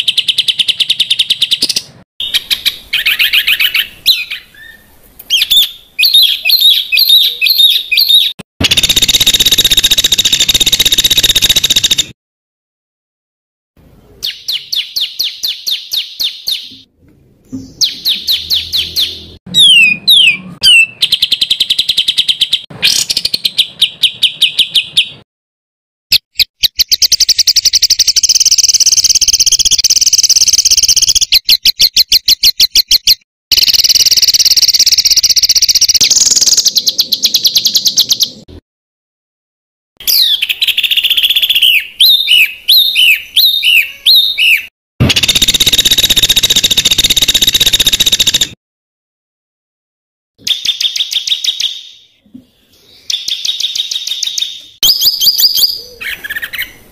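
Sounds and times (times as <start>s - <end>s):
songbird trills: 0.1s - 12.0s, 40.0s - 48.4s, 50.5s - 56.8s
downward-slurred bird whistles: 0.1s - 12.1s, 14.2s - 16.8s, 17.6s - 25.2s, 40.0s - 48.5s, 52.8s - 56.8s.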